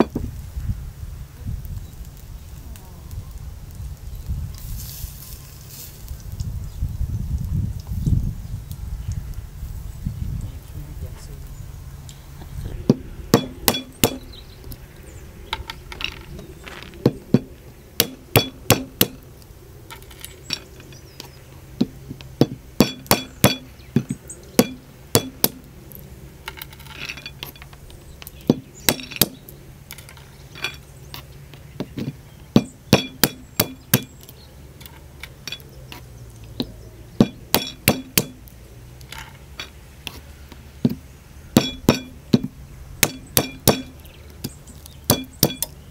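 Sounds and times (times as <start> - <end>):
stone knocking cracking walnuts: 12.9 - 14.8, 15.5 - 45.8.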